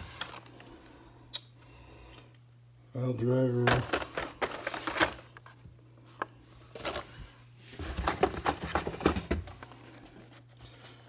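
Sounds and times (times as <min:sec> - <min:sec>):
plastic packs clacking and rustling: 0:00.0 - 0:00.7, 0:03.5 - 0:11.0.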